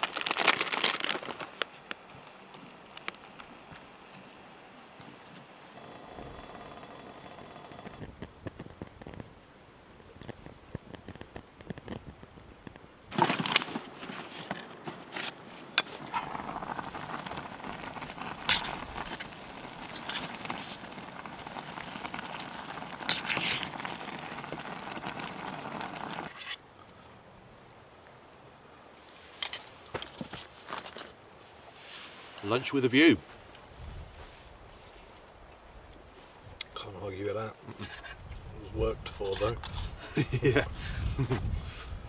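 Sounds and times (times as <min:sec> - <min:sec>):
wood stove crackling: 0:15.8 - 0:26.3.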